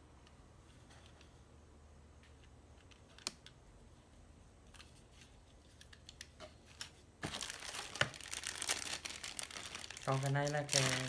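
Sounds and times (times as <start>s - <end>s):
plastic bag crinkling: 7.2s - 11.0s.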